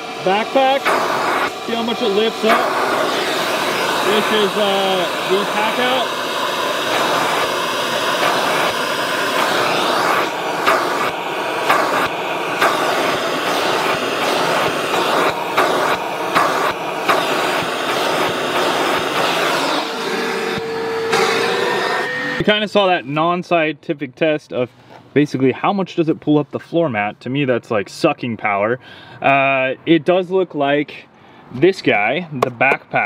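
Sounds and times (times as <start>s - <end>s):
steady whistle: 0.0s - 22.5s
wet dry vacuum running: 0.0s - 22.6s.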